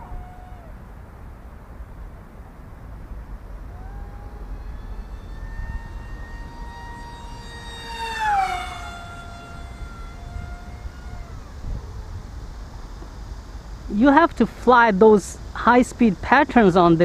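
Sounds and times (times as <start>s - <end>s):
flying wing motor and propeller whining: 0.0s - 0.9s, 2.3s - 13.9s.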